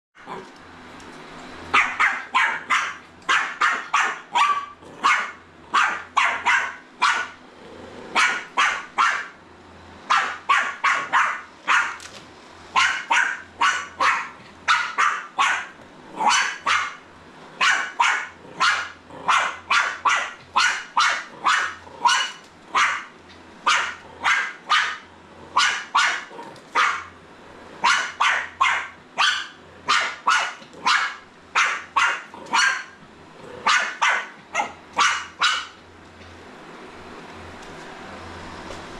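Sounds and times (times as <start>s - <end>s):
puppy barking: 1.7s - 7.4s, 8.1s - 9.4s, 10.1s - 12.0s, 12.7s - 17.0s, 17.6s - 27.2s, 27.8s - 33.0s, 33.6s - 35.8s.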